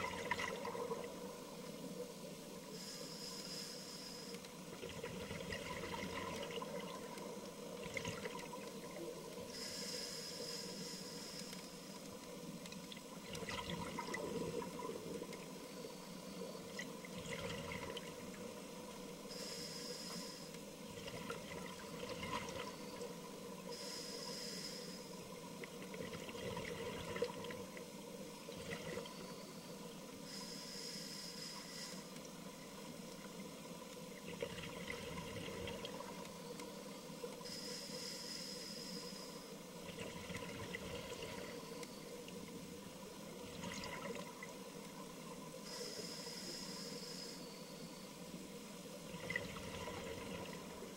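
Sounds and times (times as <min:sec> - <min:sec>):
exhaled bubbles hissing: 0:00.0 - 0:02.0, 0:02.6 - 0:11.6, 0:12.9 - 0:27.8, 0:49.1 - 0:50.9
faint steady hum: 0:00.0 - 0:50.9
regulator breathing underwater: 0:02.7 - 0:04.5, 0:09.5 - 0:11.8, 0:19.3 - 0:20.6, 0:23.7 - 0:25.2, 0:30.2 - 0:32.2, 0:37.4 - 0:39.6, 0:45.6 - 0:47.9.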